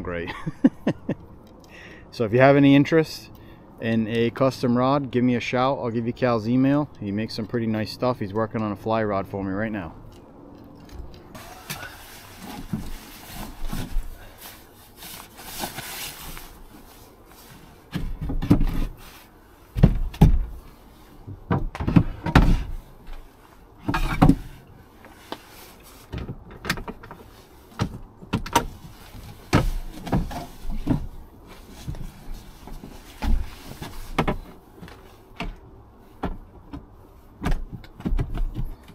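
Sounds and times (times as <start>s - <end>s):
knocks and thumps of wooden board: 19.8s - 20.5s, 36.2s - 38.9s.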